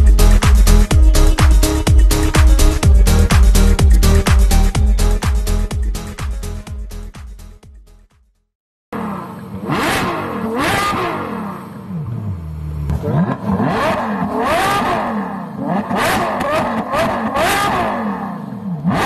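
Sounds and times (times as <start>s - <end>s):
car engine revving: 9.0s - 19.0s.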